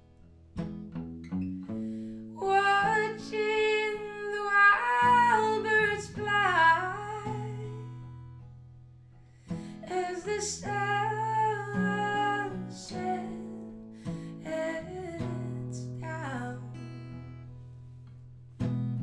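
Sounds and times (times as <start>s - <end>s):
woman singing: 2.3s - 8.0s, 9.7s - 17.2s.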